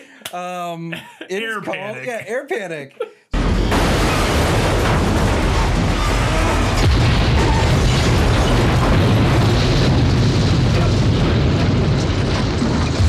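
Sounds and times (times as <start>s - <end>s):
deep rumble of explosions: 3.4s - 13.0s
jet crashing and exploding: 3.4s - 13.0s.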